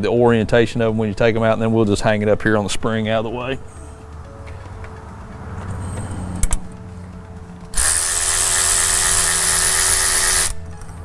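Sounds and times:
cordless ratchet running: 7.7 - 10.6.

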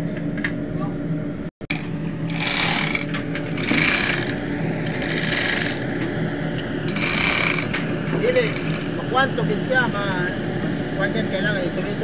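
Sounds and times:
hoist chain rattling and clicking: 1.7 - 5.8, 6.9 - 7.8, 8.4 - 8.9.

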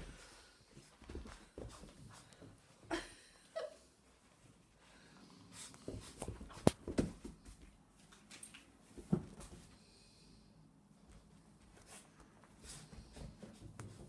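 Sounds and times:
paws and toy tapping on carpet: 5.8 - 7.4.

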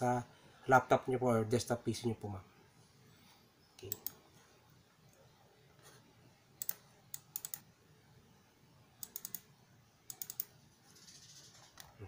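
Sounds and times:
computer mouse clicking: 3.8 - 4.2, 6.6 - 7.7, 9.0 - 9.5, 10.1 - 12.0.

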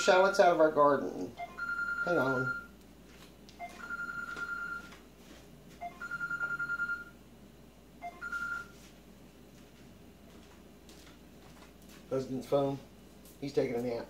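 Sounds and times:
telephone electronic ringtone: 1.4 - 2.7, 3.6 - 4.9, 5.8 - 7.2, 8.0 - 8.8.

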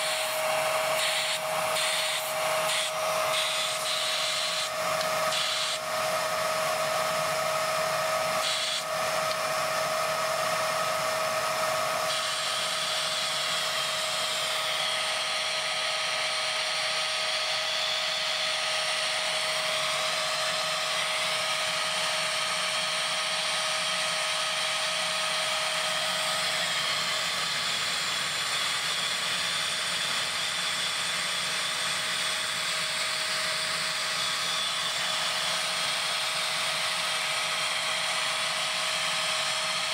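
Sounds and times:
rushing hiss: 0.0 - 4.7
vacuum motor high whine: 0.0 - 39.9.

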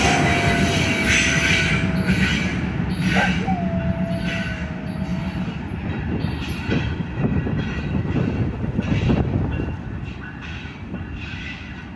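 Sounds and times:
freight train rumbling: 0.0 - 11.9.

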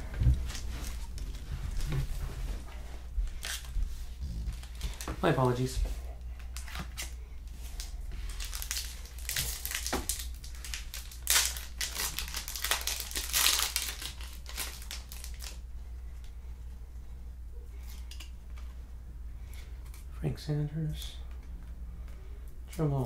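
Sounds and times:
wrapper crinkling and tearing: 3.3 - 3.8, 4.5 - 5.6, 6.4 - 15.6.

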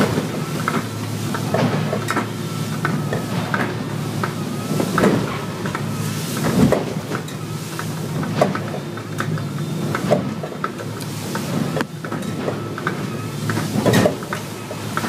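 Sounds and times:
boat engine drone: 0.0 - 15.0
hull slamming into waves: 4.7 - 7.2.

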